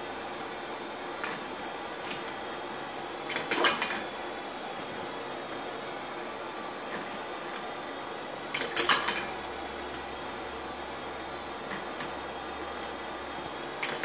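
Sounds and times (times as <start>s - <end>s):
torch flame hissing: 4.1s - 11.7s.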